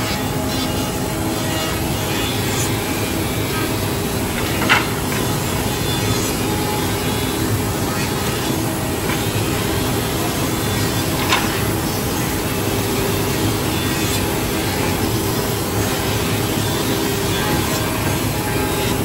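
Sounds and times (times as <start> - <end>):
woodworking machinery hum: 0.0 - 19.0.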